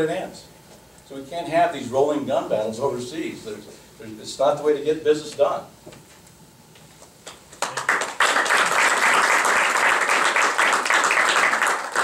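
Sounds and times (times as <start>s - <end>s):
audience applauding: 7.6s - 12.0s.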